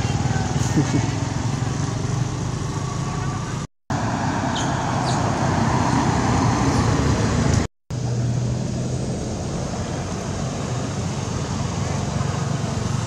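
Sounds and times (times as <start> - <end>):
low engine hum: 0.0 - 13.0
passing vehicles rushing: 0.0 - 13.0.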